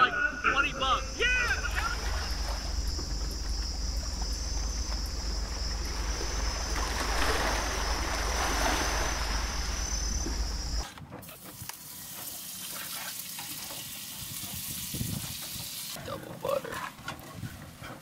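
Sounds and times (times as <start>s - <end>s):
high-pitched whine: 0.0s - 10.8s
water washing: 0.4s - 10.8s
wind rumbling on microphone: 14.3s - 15.5s.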